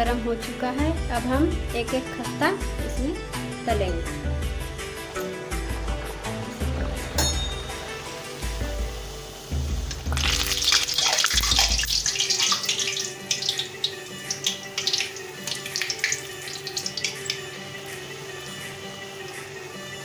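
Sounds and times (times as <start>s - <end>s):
pastry deep-frying in hot oil: 5.2s - 20.0s.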